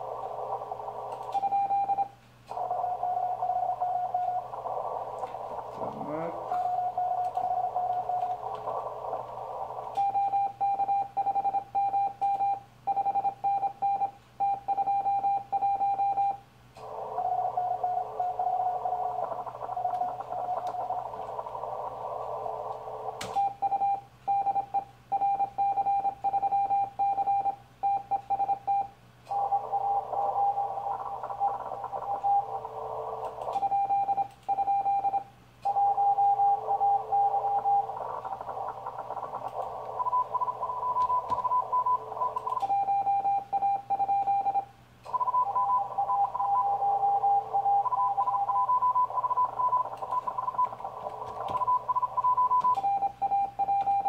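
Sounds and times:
faint morse signals: 0:00.0 - 0:54.0
receiver hiss: 0:00.0 - 0:54.0
morse code sidetone beep: 0:01.3 - 0:04.5, 0:09.9 - 0:16.4, 0:23.3 - 0:32.6, 0:33.5 - 0:54.0.

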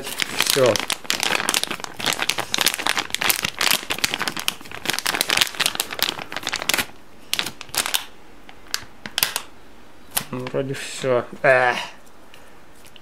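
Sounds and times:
plastic packet crinkling: 0:00.0 - 0:09.5.

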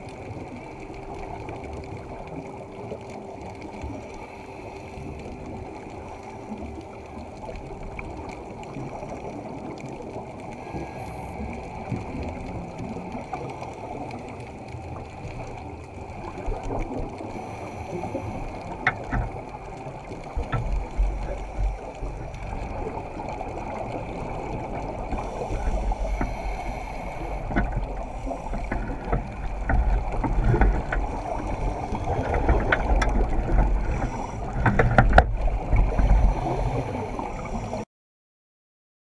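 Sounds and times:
muffled rumble of water: 0:00.0 - 0:37.8
small clicks and knocks: 0:18.4 - 0:36.2.

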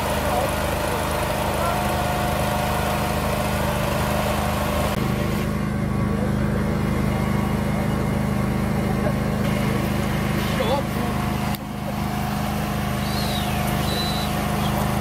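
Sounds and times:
engine droning: 0:00.0 - 0:15.0.

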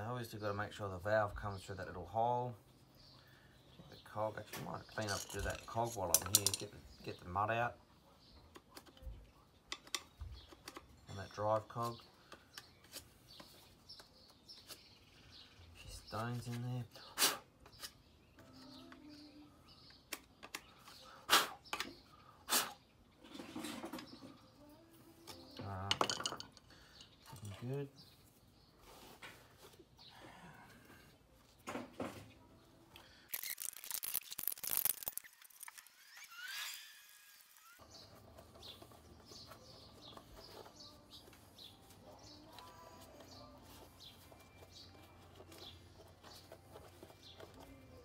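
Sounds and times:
birds chirping: 0:00.0 - 0:48.0
scooter wheel clicks and rattles: 0:33.3 - 0:36.6.

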